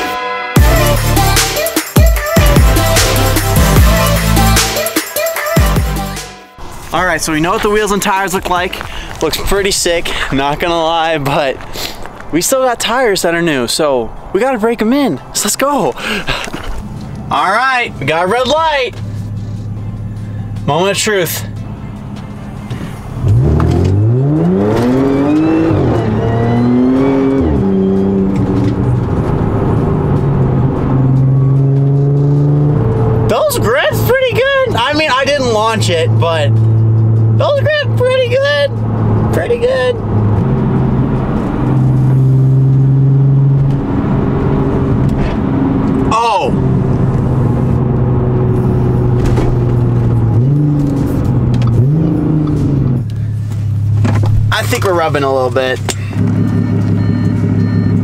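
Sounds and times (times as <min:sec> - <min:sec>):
car engine accelerating hard: 0:16.0 - 0:58.0
gearbox shifting up: 0:22.0 - 0:34.1, 0:44.6 - 0:58.0.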